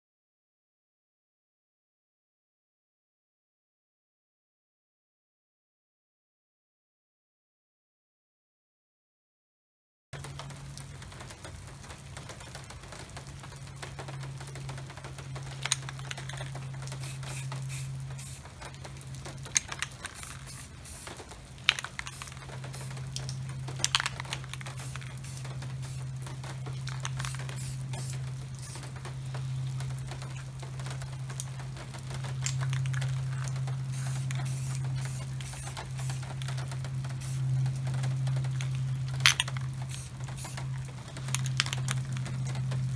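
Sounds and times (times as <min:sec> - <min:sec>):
low hum: 0:10.2 - 0:42.9
spray paint can hissing: 0:15.5 - 0:30.6, 0:32.3 - 0:42.5.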